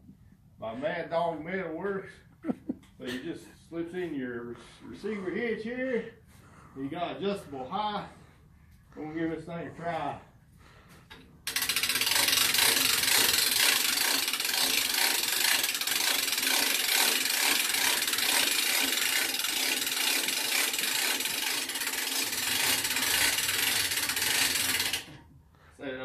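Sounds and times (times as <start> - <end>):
winch ratchet clicking: 11.1 - 25.2.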